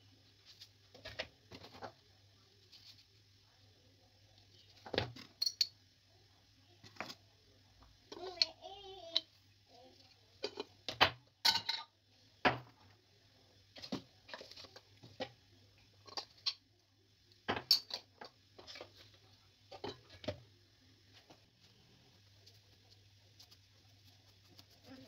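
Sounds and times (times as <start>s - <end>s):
faint low hum: 0.0s - 25.0s
metal spoon clinking and tapping: 5.4s - 5.7s, 17.6s - 18.0s.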